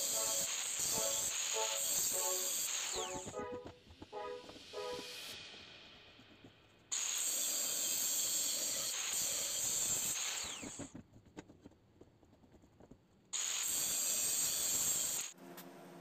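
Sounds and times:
angle grinder cutting pipe: 0.0 - 3.4, 6.9 - 10.8, 13.4 - 15.3.

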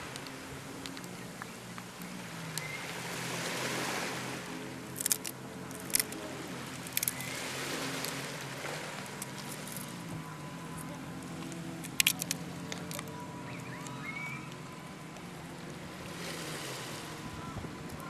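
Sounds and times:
steady low hum: 0.0 - 18.0
surf: 0.0 - 18.0
wind: 0.0 - 18.0
sharp clicks: 11.4 - 15.3.

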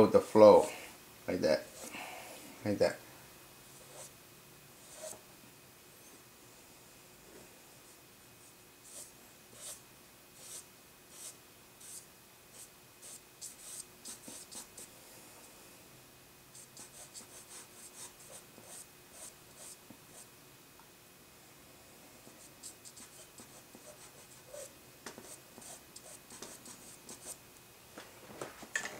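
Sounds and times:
eraser pencil strokes on paper: 3.8 - 4.1, 4.8 - 5.2, 8.8 - 9.8, 10.4 - 14.9, 16.6 - 20.3, 22.2 - 27.4.

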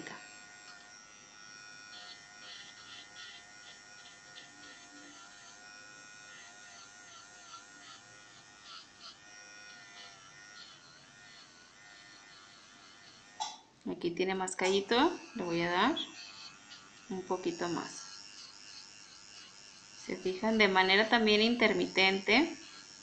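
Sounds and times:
electric nail drill whine: 0.0 - 13.4, 14.0 - 23.0.

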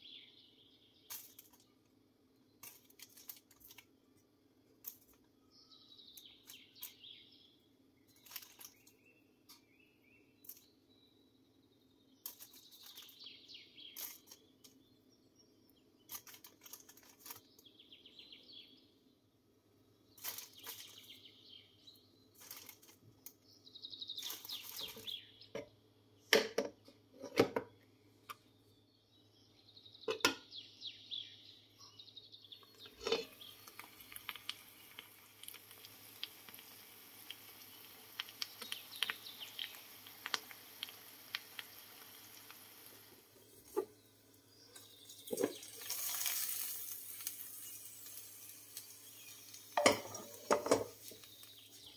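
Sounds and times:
steady frying sizzle with crackles: 1.0 - 7.4, 8.0 - 9.8, 12.2 - 15.2, 16.0 - 17.8, 20.1 - 25.6, 32.5 - 51.9
potato slices sizzling in hot oil: 8.1 - 9.0, 12.2 - 14.7, 20.1 - 21.2, 22.3 - 23.0, 24.2 - 25.2, 32.7 - 51.9.

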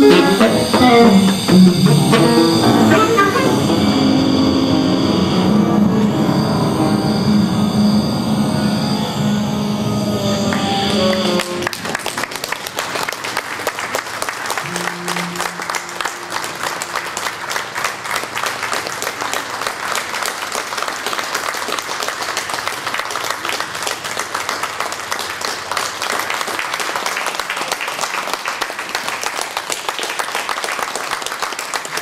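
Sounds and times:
held music note: 0.0 - 12.6, 14.6 - 18.4
audience applauding: 10.3 - 32.0.

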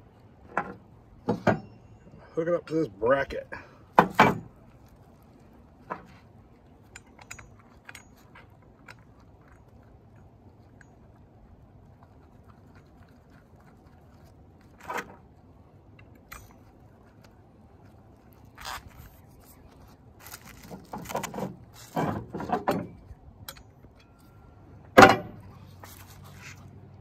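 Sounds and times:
metal parts clinking: 6.8 - 10.9
bubble wrap rustling: 16.7 - 22.0.

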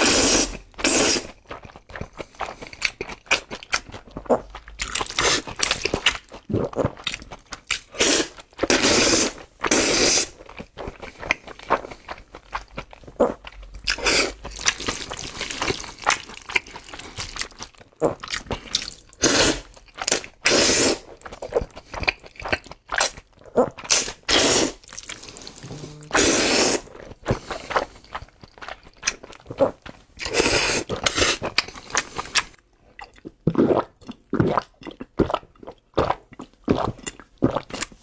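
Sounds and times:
noodle slurping: 0.0 - 3.5, 4.2 - 7.2, 7.8 - 28.2, 29.1 - 32.6
wet chewing: 0.0 - 38.0
gulps from drink bottle: 23.5 - 27.5.

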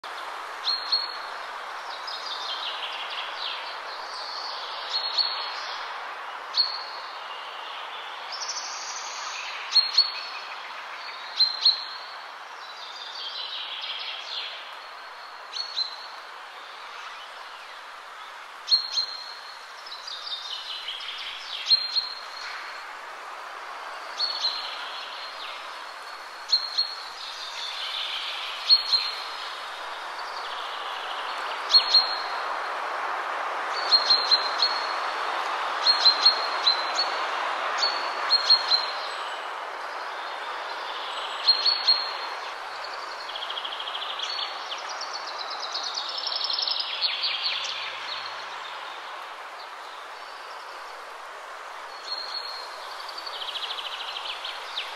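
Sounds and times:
outdoor background hiss: 0.0 - 54.9.

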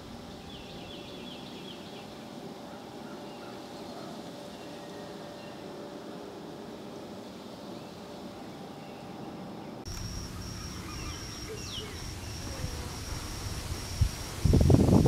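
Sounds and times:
quiet outdoor background: 0.0 - 15.0
faint falling chirps: 9.9 - 14.0.

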